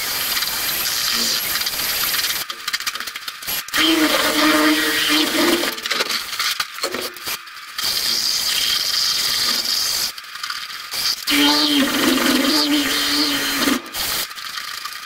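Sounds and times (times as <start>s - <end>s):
drill motor whine: 3.7s - 5.8s, 11.3s - 14.0s.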